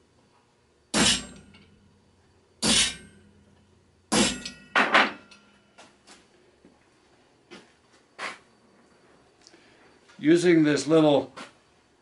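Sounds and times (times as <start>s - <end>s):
hammer striking metal tool: 0.9s - 1.9s, 2.6s - 3.5s, 4.1s - 5.6s.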